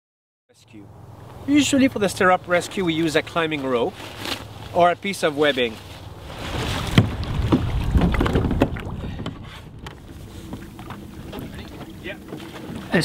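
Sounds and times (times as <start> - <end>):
water splashing beside kayak: 1.2 - 13.0
wind rumble on microphone: 5.9 - 13.0.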